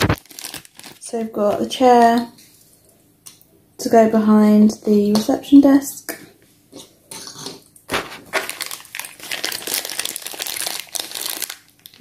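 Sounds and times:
plastic packaging crinkling: 0:00.0 - 0:01.6, 0:07.9 - 0:12.0.

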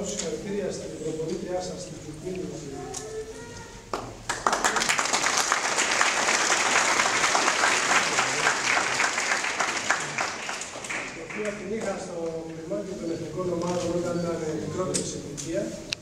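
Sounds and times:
people applauding: 0:03.9 - 0:12.1.

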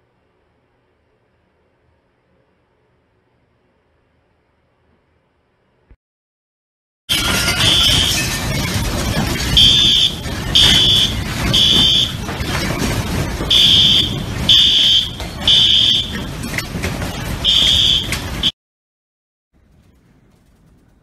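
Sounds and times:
rattling noise: 0:07.1 - 0:18.5
smoke alarm beeping: 0:09.5 - 0:12.2, 0:13.5 - 0:16.2, 0:17.4 - 0:18.5.

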